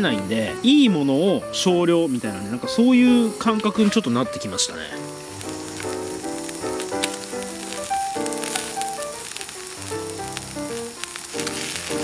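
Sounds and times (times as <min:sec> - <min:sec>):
beef sizzling on a grill: 0:00.0 - 0:12.0.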